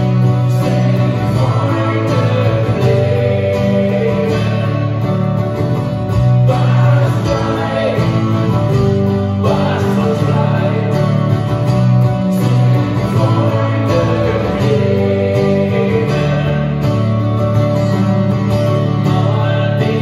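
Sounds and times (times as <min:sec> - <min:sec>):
man singing: 0:00.0 - 0:05.3, 0:06.1 - 0:11.7, 0:12.3 - 0:17.1, 0:18.9 - 0:20.0
acoustic guitars strummed and picked: 0:00.0 - 0:20.0.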